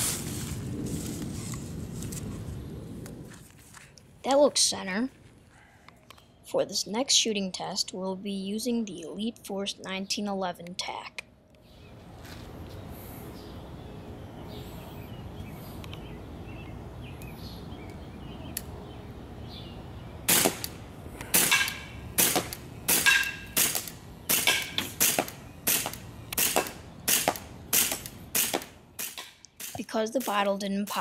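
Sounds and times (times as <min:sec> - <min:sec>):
airsoft pistol shots: 0:20.3 - 0:30.3.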